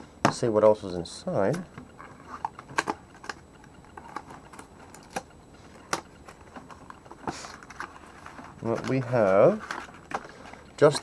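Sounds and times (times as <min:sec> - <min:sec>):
packaging clicks and taps: 0:02.4 - 0:11.0
cardboard rustling: 0:06.3 - 0:11.0.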